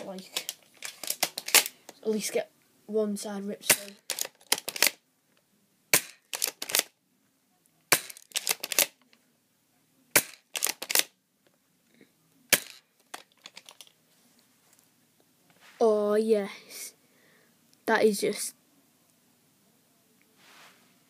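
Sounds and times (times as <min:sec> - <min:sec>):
bb gun cracks: 0:03.6 - 0:05.0, 0:05.9 - 0:06.9, 0:07.9 - 0:09.0, 0:10.1 - 0:11.1, 0:12.5 - 0:13.8.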